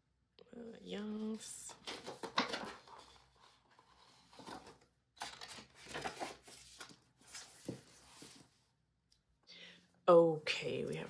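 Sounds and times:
cardboard and paper rustling: 0:01.2 - 0:08.5.

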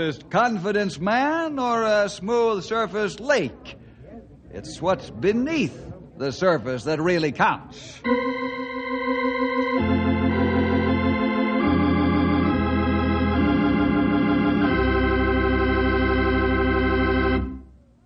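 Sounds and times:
organ chords: 0:08.0 - 0:18.0.

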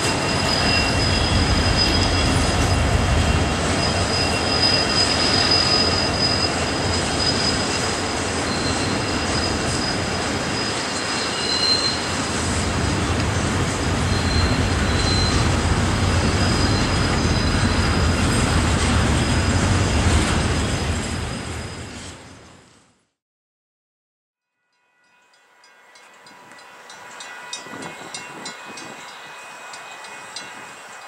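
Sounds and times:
high-pitched wheel squeals: 0:00.0 - 0:12.4, 0:14.0 - 0:19.6
freight train rumbling on rails: 0:00.0 - 0:22.9, 0:25.4 - 0:31.0.

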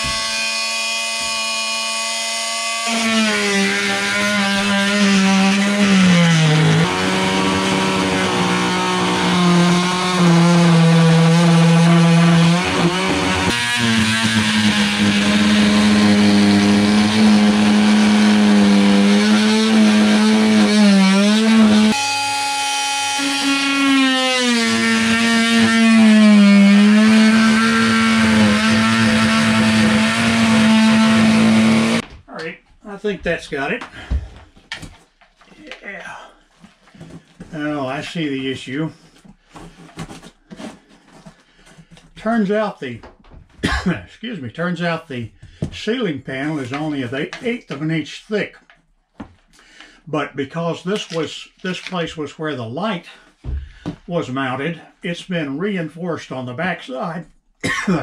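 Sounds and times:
oscillating multi-tool cutting: 0:00.0 - 0:32.0.

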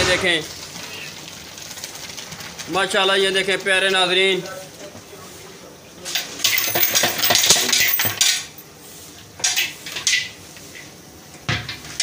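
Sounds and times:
metal pot clattering and scraping: 0:06.2 - 0:08.4.

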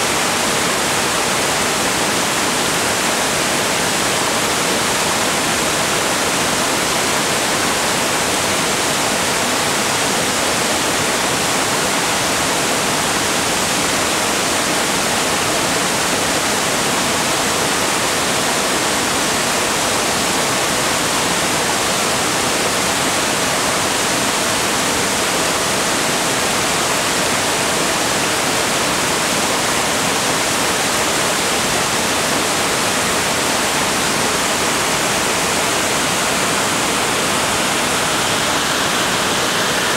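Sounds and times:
waterfall rushing: 0:00.0 - 0:39.9.

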